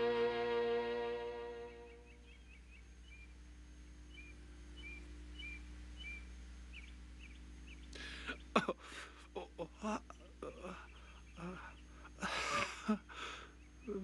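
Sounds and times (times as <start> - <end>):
small bird chirping: 1.5 - 8.7
man groaning and gasping: 8.7 - 11.8.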